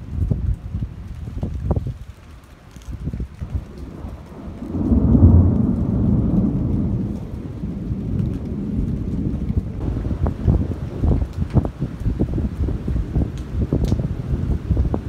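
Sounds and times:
thunder rumbling: 0:03.0 - 0:15.0.

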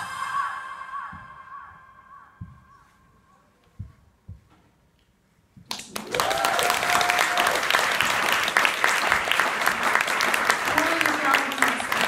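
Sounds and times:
audience applause: 0:05.7 - 0:12.0
person whooping: 0:06.1 - 0:07.6.

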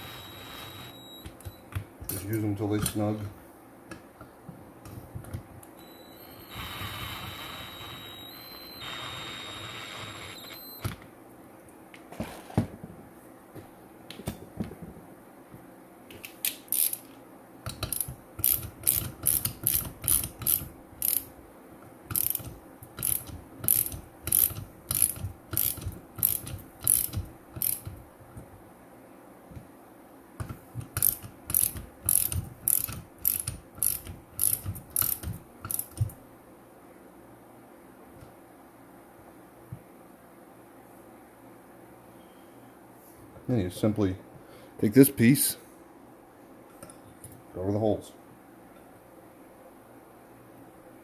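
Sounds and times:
ratchet wrench clicking: 0:16.7 - 0:17.1, 0:17.8 - 0:21.3, 0:22.1 - 0:27.9, 0:31.0 - 0:36.0.

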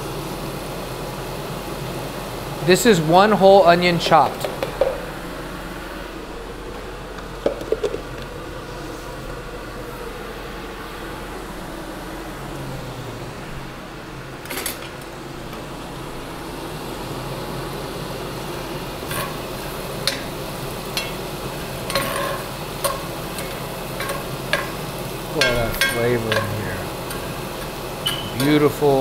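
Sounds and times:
onion sizzling in oil: 0:15.8 - 0:29.0
metal spatula scraping a pan: 0:21.9 - 0:23.0.

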